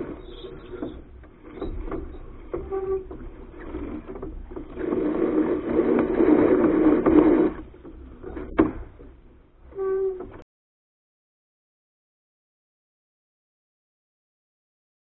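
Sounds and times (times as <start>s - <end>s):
small knocks and rattles: 0.0s - 9.4s.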